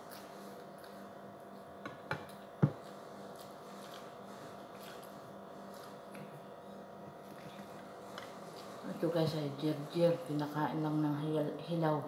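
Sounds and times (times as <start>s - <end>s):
dishes knocking on plates: 1.8s - 2.8s.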